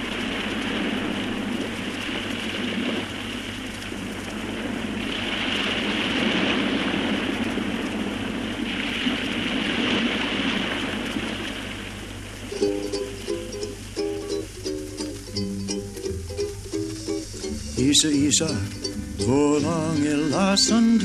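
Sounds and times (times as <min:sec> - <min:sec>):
low steady hum: 0:00.0 - 0:21.0
rushing noise: 0:00.0 - 0:21.0
ukulele music: 0:12.4 - 0:21.0.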